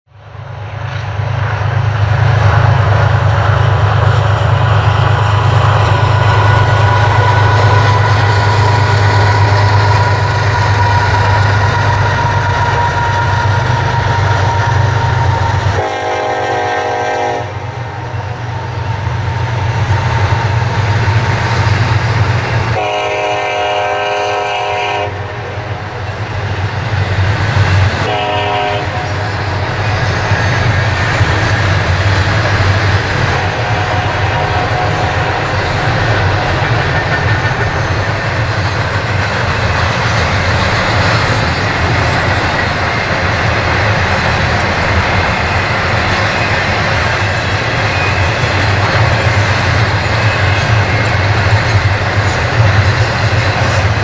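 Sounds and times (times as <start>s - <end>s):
freight train rumbling past: 0.1s - 54.0s
train horn blasts: 6.4s - 18.0s, 22.7s - 25.7s, 28.0s - 29.2s, 33.3s - 35.6s.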